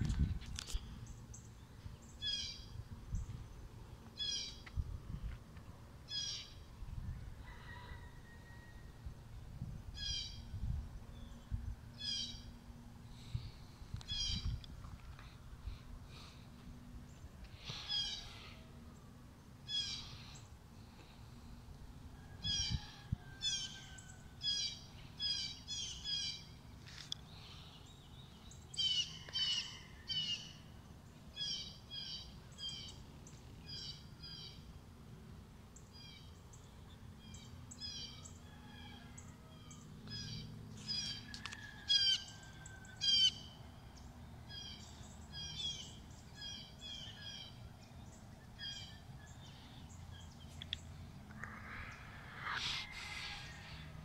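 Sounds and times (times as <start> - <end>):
birds chirping: 43.1 - 54.0
faint low hum: 47.6 - 54.0.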